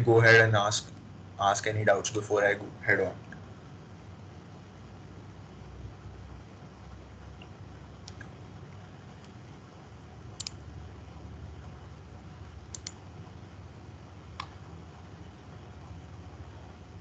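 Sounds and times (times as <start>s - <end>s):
faint low background hum: 0.0s - 17.0s
computer mouse clicks: 7.4s - 8.3s, 10.4s - 10.6s, 12.7s - 13.0s.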